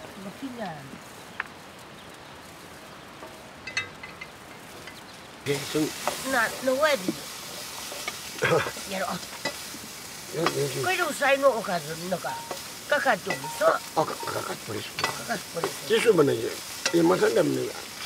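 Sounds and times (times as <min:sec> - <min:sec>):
butter sizzling in a pan: 0:00.0 - 0:18.0
man talking: 0:05.5 - 0:06.1, 0:08.4 - 0:08.8, 0:10.3 - 0:10.9, 0:13.9 - 0:17.9
ladle stirring: 0:05.5 - 0:10.8, 0:12.2 - 0:18.0.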